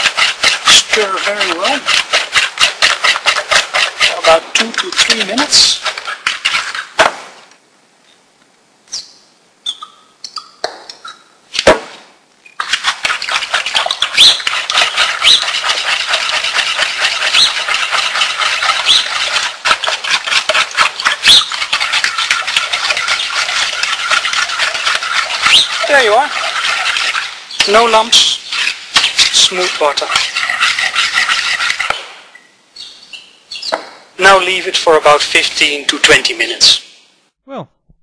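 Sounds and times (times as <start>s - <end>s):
whisk beating batter in plastic bowl: 0.0s - 6.9s, 12.6s - 32.0s, 34.2s - 36.3s
knocks: 33.7s - 34.0s.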